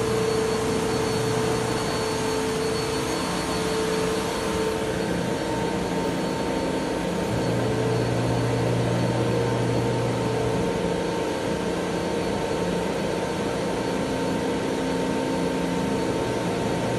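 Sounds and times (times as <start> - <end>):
router machine whine: 0.0 - 11.0.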